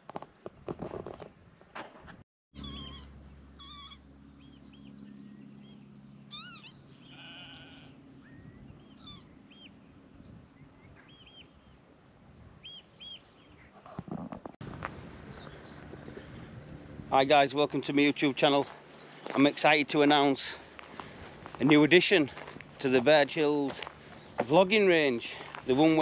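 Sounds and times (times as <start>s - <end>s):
animal bleat: 2.6s - 4.0s, 6.3s - 8.1s
birds chirping and trilling: 2.6s - 11.9s, 12.6s - 13.9s, 15.2s - 16.5s, 17.6s - 26.0s.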